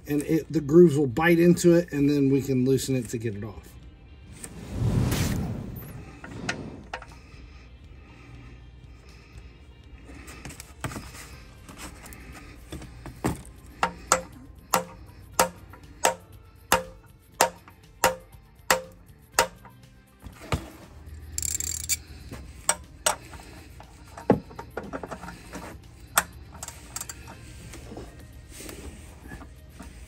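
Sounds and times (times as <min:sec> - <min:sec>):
hammer tapping metal socket: 0:13.8 - 0:19.8
ratchet clicks: 0:21.3 - 0:22.1, 0:26.1 - 0:27.3.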